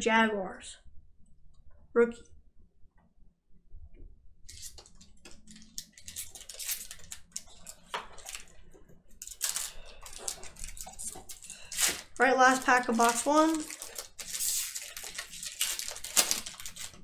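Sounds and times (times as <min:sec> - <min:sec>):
card wrapper crinkling rustles: 0:04.5 - 0:17.0.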